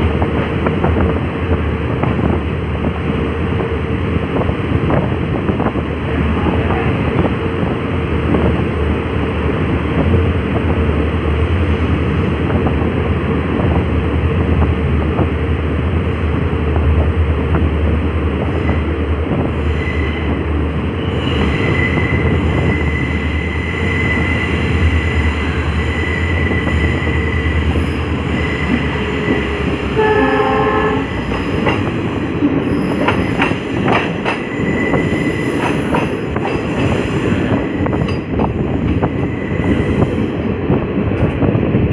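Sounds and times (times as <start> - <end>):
train wheels rumbling in tunnel: 0.0 - 41.9
train horn blast: 29.9 - 31.3.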